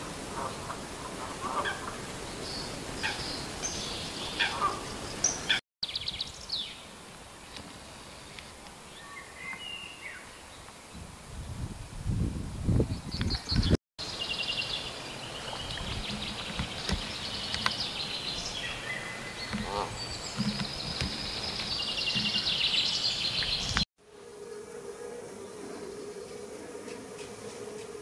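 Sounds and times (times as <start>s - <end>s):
songbirds trilling and chirping: 0.0s - 11.0s, 12.8s - 23.9s.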